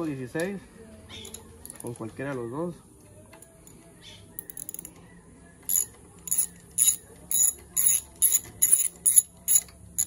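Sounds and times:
socket ratchet clicking: 5.7s - 10.0s.

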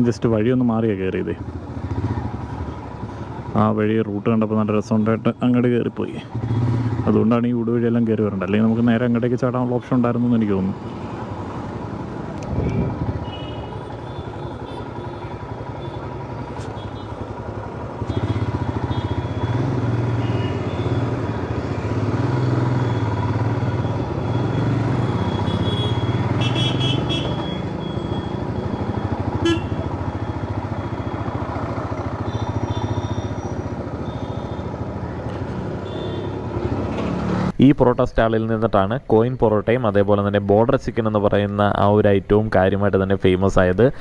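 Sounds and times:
motorcycle engine: 0.8s - 4.1s, 5.6s - 7.6s, 9.7s - 37.6s
vehicle horn toots: 12.6s - 17.2s, 18.0s - 21.0s, 25.2s - 27.6s, 29.3s - 29.9s, 32.2s - 33.4s, 35.8s - 36.5s.

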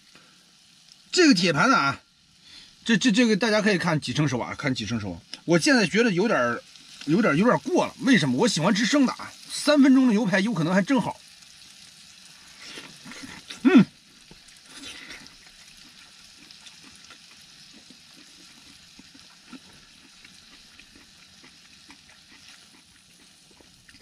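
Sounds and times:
steak sizzling in pan: 0.0s - 24.0s
man murmuring: 13.1s - 13.9s.

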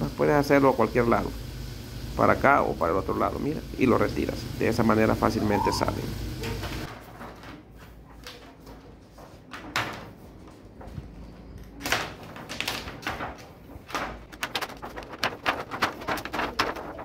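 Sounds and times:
plastic sheet rustling and crackling: 6.4s - 17.0s.

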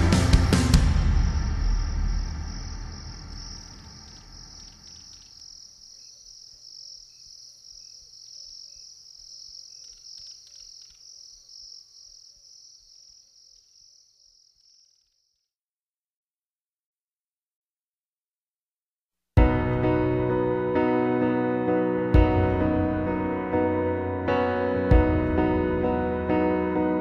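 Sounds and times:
high pulsing insect trill: 0.9s - 15.6s
faint small chirps: 3.4s - 15.5s.

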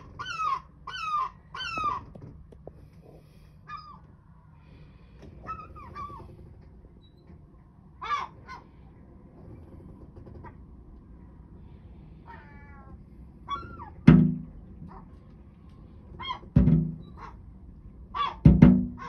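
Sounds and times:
gull calling: 0.0s - 2.2s, 8.0s - 8.8s, 12.2s - 14.1s, 16.1s - 17.5s, 18.1s - 19.0s
beak banging on glass door: 13.6s - 14.6s, 16.3s - 17.4s, 18.2s - 19.0s.

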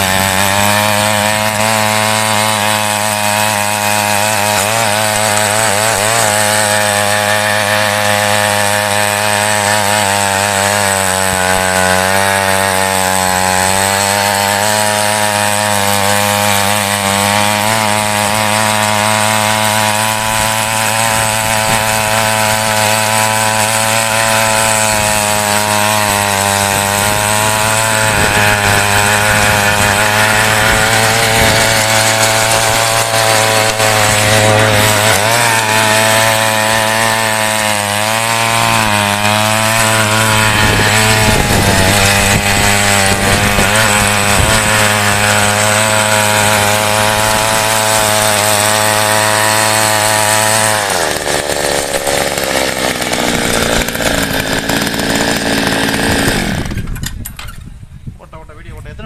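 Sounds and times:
small tiller engine running hard: 0.0s - 57.6s.

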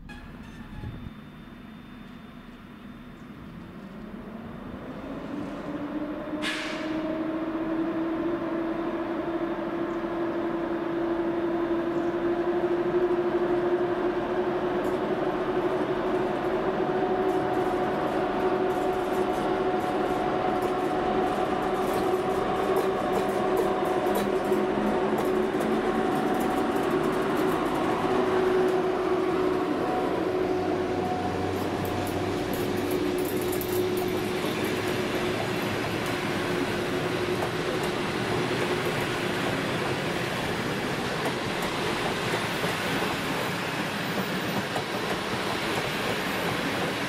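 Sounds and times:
electric locomotive hum: 0.0s - 47.0s
train wheels clicking on rails: 11.6s - 47.0s.

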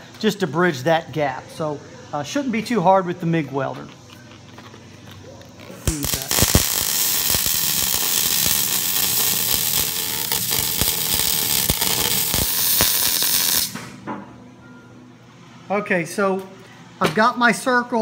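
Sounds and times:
welder arc crackling hiss: 5.6s - 13.9s.

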